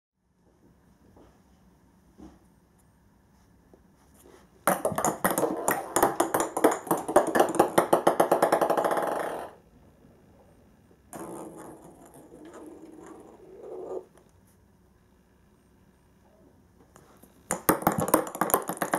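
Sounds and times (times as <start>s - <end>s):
ping-pong balls bouncing on wood: 4.7s - 9.6s, 11.2s - 13.9s, 17.5s - 18.9s.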